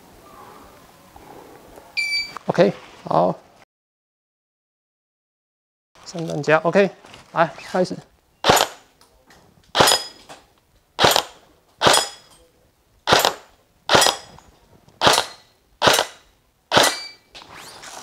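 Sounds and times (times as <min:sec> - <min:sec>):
airsoft rifle shots: 0:08.4 - 0:08.9, 0:09.7 - 0:10.2, 0:11.0 - 0:12.3, 0:13.0 - 0:14.4, 0:15.0 - 0:17.2
bb ringing on steel plate: 0:16.8 - 0:17.3.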